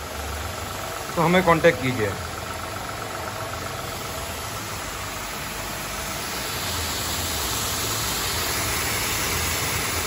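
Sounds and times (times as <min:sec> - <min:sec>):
high-pressure water jet hissing: 0:03.3 - 0:10.0.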